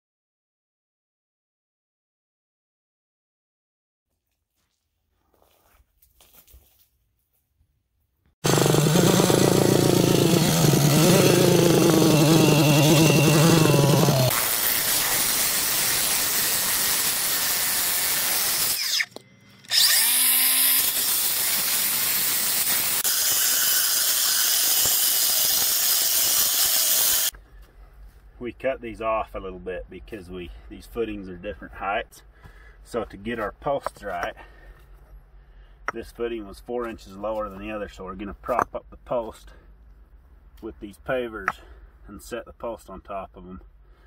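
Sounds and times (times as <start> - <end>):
cut-off saw cutting stone: 8.4 - 27.3.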